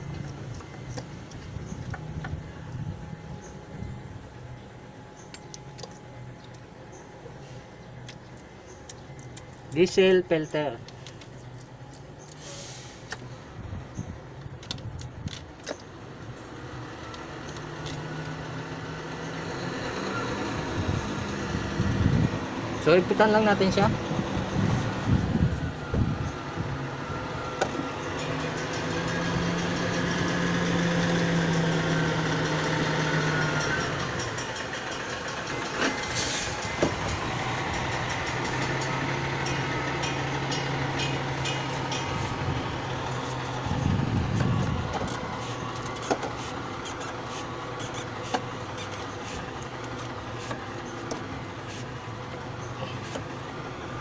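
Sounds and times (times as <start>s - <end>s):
vehicle engine running: 15.5s - 54.0s.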